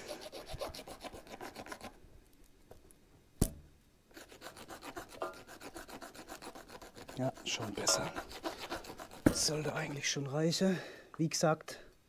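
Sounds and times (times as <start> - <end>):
knife scraping dry wood: 0.0 - 2.0, 4.1 - 9.9.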